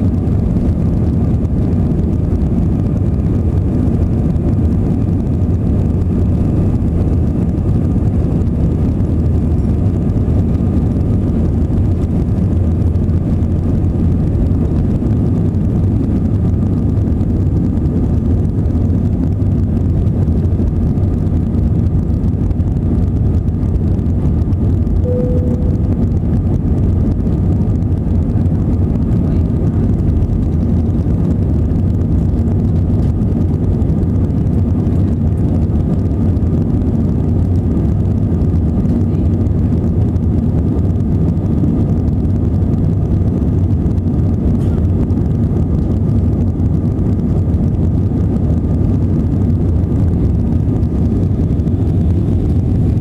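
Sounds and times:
faint engine whine: 0.0s - 53.0s
jet engines deep rumble: 0.0s - 53.0s
brief faint tone: 25.0s - 26.1s.

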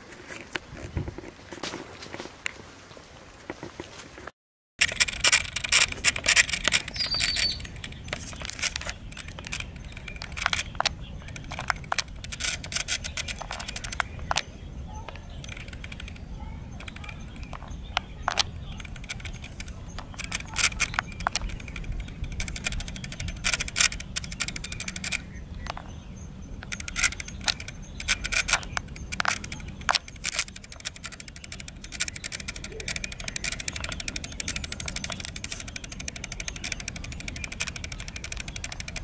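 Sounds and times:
close crackling and rustling: 0.0s - 39.0s.

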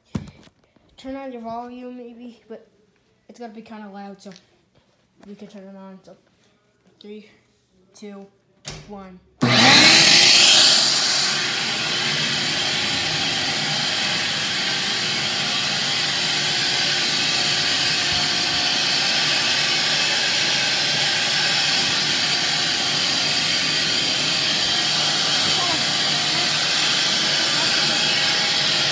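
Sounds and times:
shop vacuum running: 9.4s - 28.9s.

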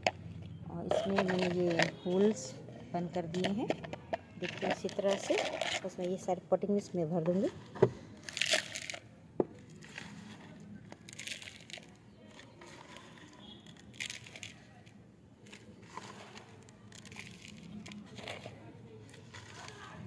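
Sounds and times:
potting mix rustling and crunching: 0.8s - 2.5s, 4.4s - 6.3s, 7.3s - 20.0s.

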